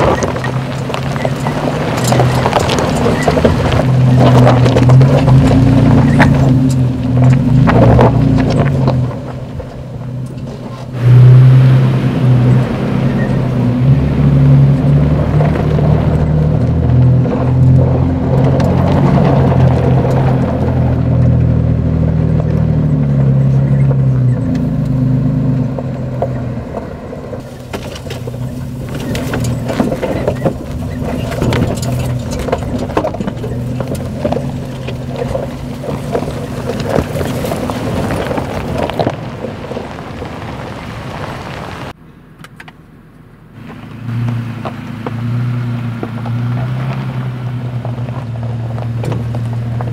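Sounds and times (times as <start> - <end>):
gravel crackling under tyres: 0.0 - 49.9
suv engine pulling uphill: 0.0 - 49.9.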